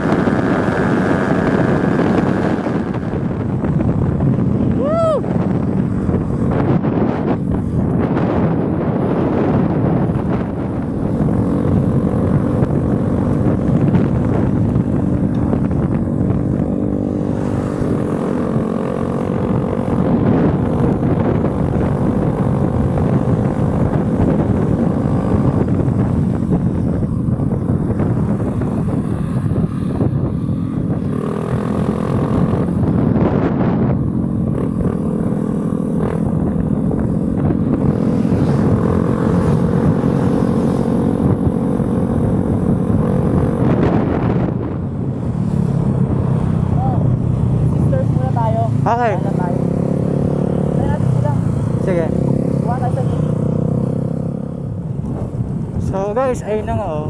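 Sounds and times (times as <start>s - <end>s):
wind on microphone: 0.0s - 57.0s.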